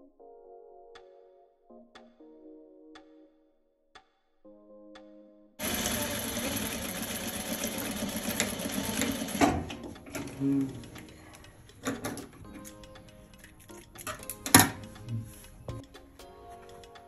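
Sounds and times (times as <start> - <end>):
sewing machine running: 5.6 - 10.4.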